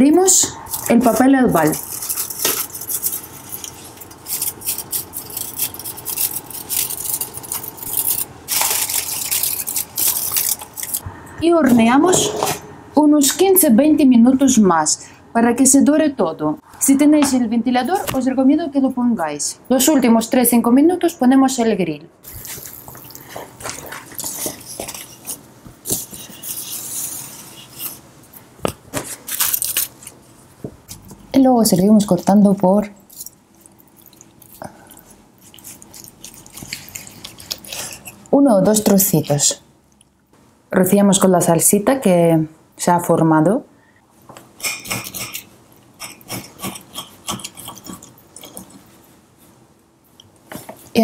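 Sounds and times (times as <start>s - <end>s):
aluminium foil crinkling: 0.7s - 11.0s, 22.2s - 28.0s, 29.0s - 31.0s, 31.6s - 39.5s
metal baking dish handled: 11.7s - 12.7s.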